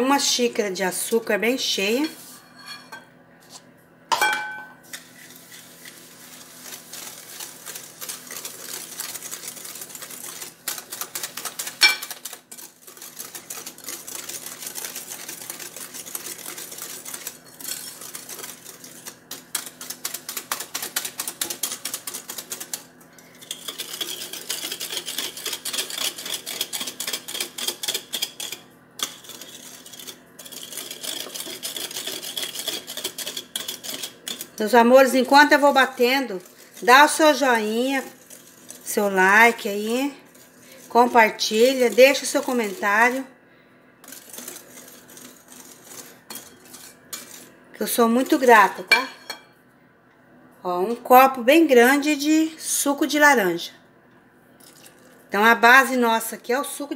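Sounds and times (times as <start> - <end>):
ringing clink against bowl: 4.1 - 4.8.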